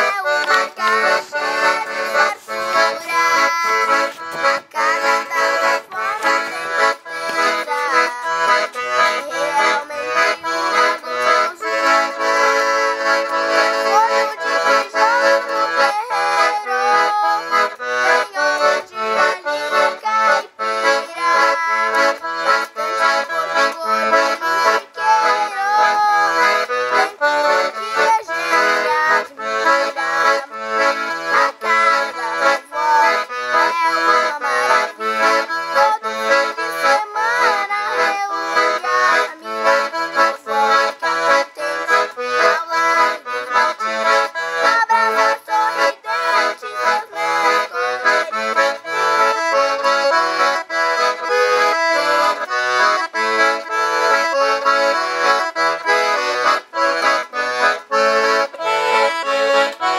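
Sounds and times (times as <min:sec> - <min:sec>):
piano accordion playing: 0:00.0 - 0:59.9.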